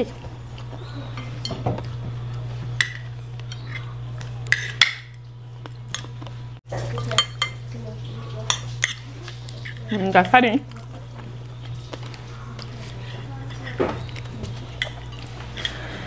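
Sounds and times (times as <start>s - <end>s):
steady low hum: 0.0s - 16.0s
cutlery clinking on plates: 6.8s - 7.6s.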